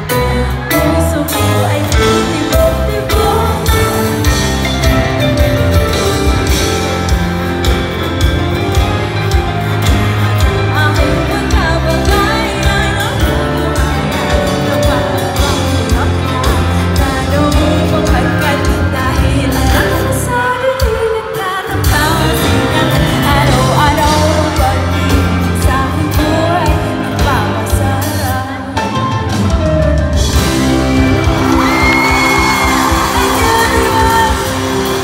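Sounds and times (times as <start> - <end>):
woman singing: 0.0 - 5.0, 10.3 - 29.6, 30.3 - 35.0
rock band playing: 0.0 - 35.0
crowd whooping: 30.4 - 35.0.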